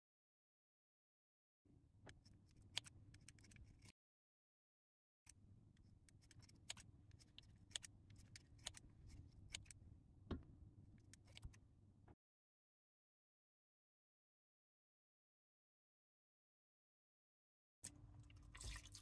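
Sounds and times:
scissors snipping: 6.0 - 9.8.

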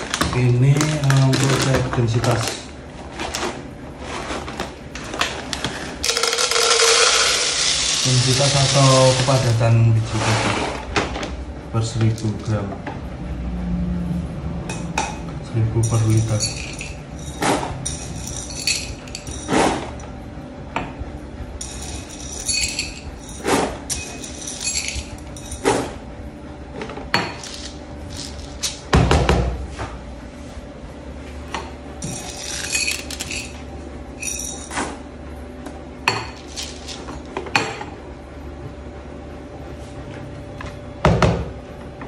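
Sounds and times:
coffee beans rattling into container: 0.0 - 2.7, 6.0 - 9.8, 15.8 - 19.5, 21.6 - 25.6, 27.3 - 28.8, 32.0 - 33.6, 34.2 - 34.7, 36.3 - 37.3
metal cup clinking: 6.1 - 9.1.

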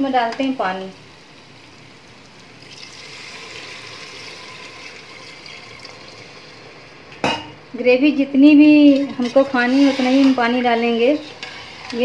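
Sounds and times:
water pouring into a pot: 2.5 - 6.8.

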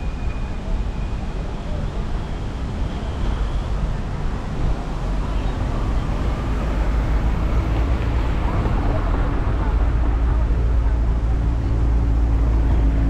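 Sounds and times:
street traffic: 0.0 - 13.0.

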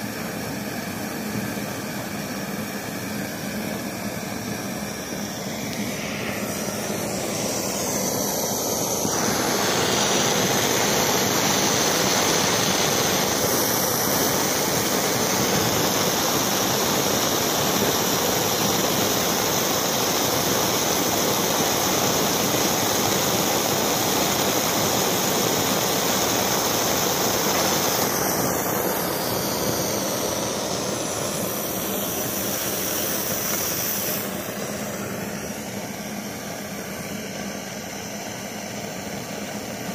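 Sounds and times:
kerosene stove burner hissing: 0.0 - 39.9.

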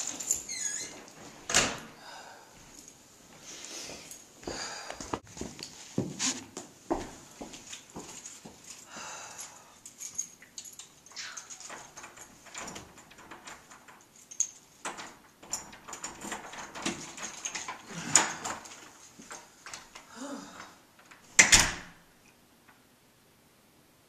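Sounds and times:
door lock clicks and rattles: 10.5 - 20.1, 21.0 - 22.0
door slamming shut: 21.3 - 22.0.

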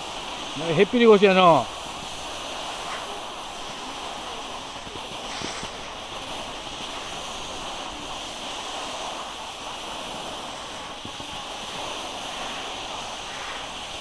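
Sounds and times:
snowboard sliding over snow: 0.0 - 14.0
wind on microphone: 0.0 - 14.0.

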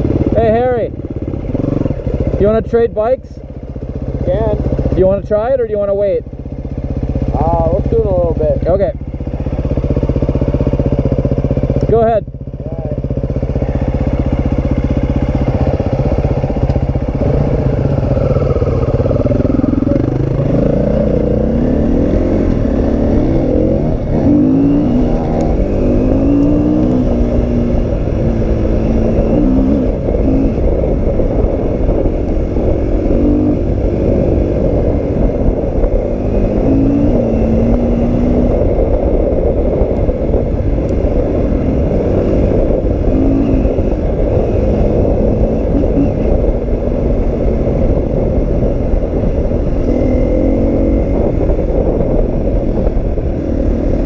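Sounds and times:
motorcycle idling: 0.0 - 36.1
motorcycle engine revving: 0.0 - 54.0.

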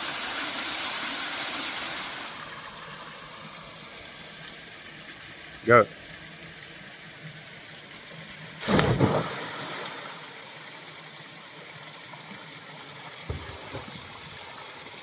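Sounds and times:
person splashing into water: 8.6 - 10.2
water washing: 8.6 - 10.2.

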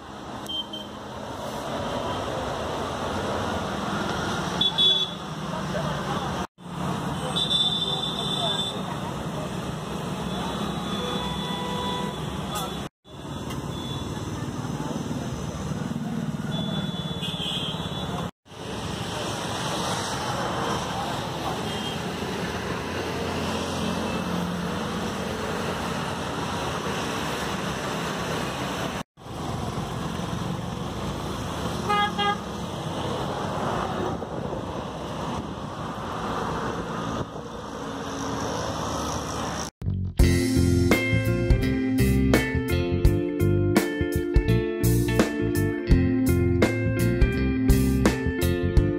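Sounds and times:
road traffic passing: 0.0 - 48.9
vehicle horn toot: 4.6 - 5.2, 10.3 - 14.1, 16.5 - 18.2, 31.9 - 32.4.

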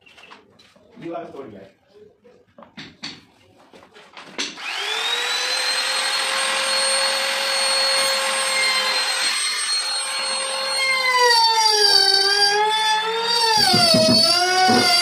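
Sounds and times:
trim router whining: 4.6 - 15.0.

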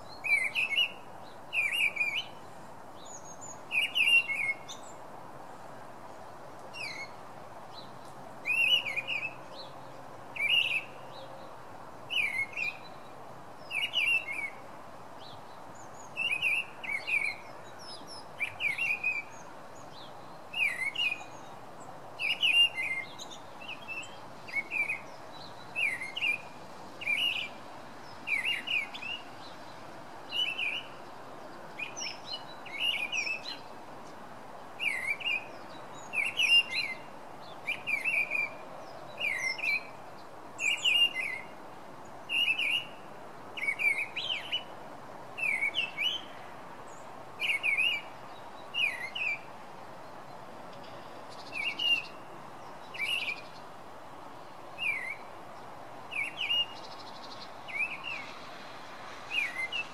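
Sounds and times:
faint steady hiss: 0.0 - 59.9
song thrush singing: 0.0 - 59.9.

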